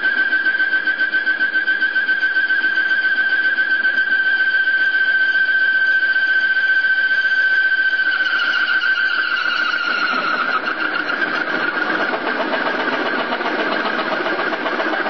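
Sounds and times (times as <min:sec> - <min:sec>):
mill cutting steel whining: 0:00.0 - 0:15.0.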